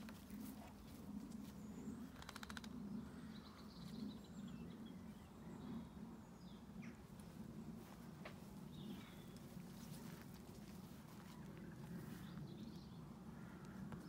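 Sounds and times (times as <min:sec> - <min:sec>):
small birds chirping: 0:00.0 - 0:14.0
steady low hum: 0:00.0 - 0:14.0.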